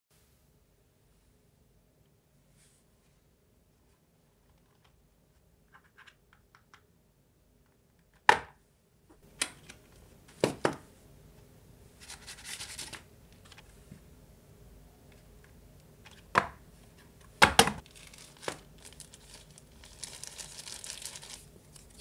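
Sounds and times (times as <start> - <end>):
plastic bag crinkling: 17.8 - 22.0.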